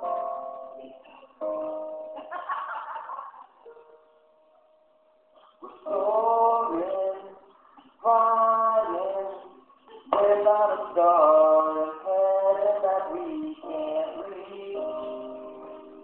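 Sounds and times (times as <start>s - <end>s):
man singing: 5.6s - 15.8s.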